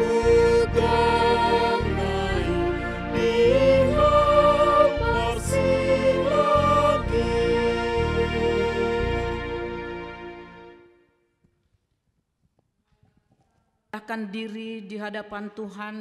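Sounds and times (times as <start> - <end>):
sustained accompanying chords: 0.0 - 11.1.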